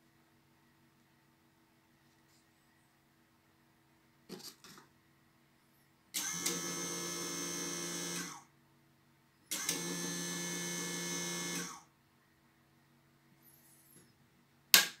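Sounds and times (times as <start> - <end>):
motor whirring: 6.2 - 8.4, 9.5 - 11.8.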